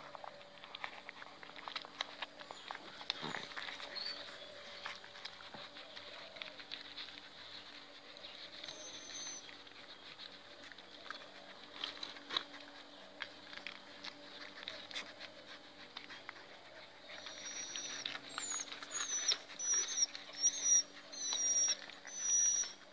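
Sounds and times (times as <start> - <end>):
puppies suckling wet clicks: 0.0 - 22.9
high-pitched puppy squeaks: 8.7 - 9.4, 17.1 - 22.9.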